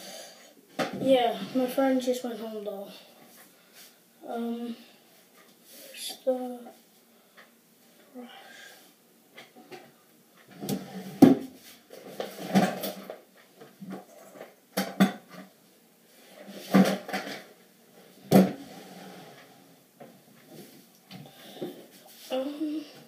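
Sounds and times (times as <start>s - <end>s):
objects knocking and clattering: 10.5s - 15.5s, 16.6s - 17.5s, 18.2s - 18.7s.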